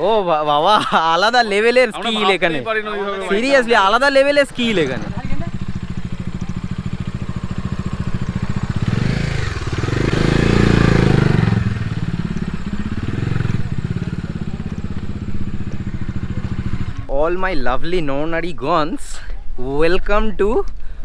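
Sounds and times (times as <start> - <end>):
motorcycle engine running: 3.3 - 18.3.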